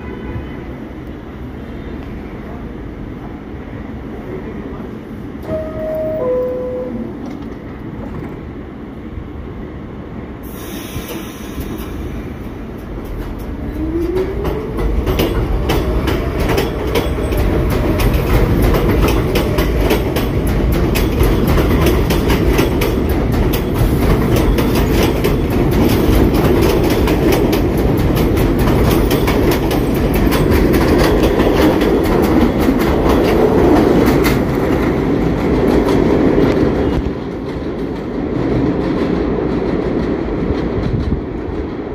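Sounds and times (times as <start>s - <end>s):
train wheel rumble: 0.0s - 41.9s
train air hiss: 10.4s - 12.8s
wheels clicking over rail joints: 12.8s - 41.3s.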